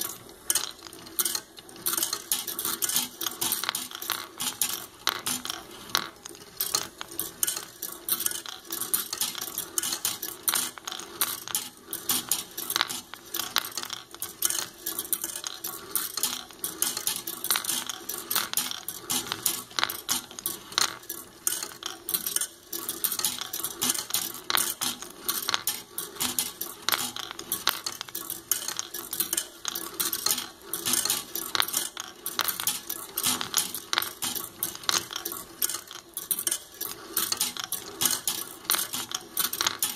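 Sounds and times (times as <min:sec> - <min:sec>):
steel balls clattering on metal rails: 0:00.0 - 0:39.9.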